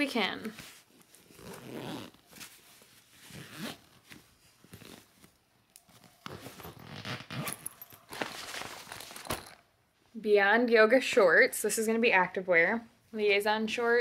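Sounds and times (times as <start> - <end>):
fabric rustling: 0.1 - 10.0
zipper being pulled closed: 1.2 - 2.5, 3.2 - 4.0, 4.7 - 5.1, 5.9 - 8.2.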